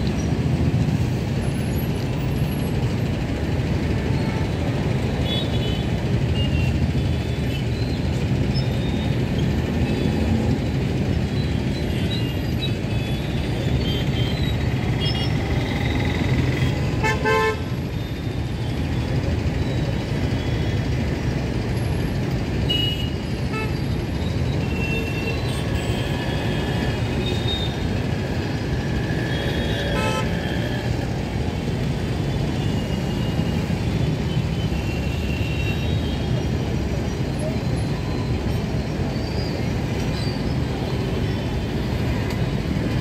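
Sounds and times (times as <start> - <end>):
road traffic rumble: 0.0 - 43.0
car horns honking: 29.8 - 30.4.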